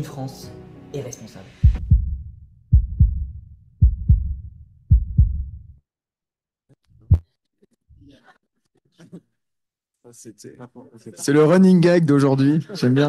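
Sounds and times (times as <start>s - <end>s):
heartbeat thumps: 1.6s - 5.7s, 7.0s - 7.3s.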